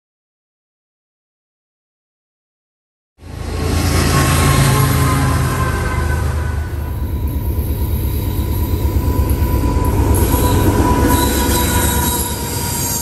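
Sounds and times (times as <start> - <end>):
diesel locomotive engine rumble: 3.2 - 13.0
steady high tone: 3.4 - 13.0.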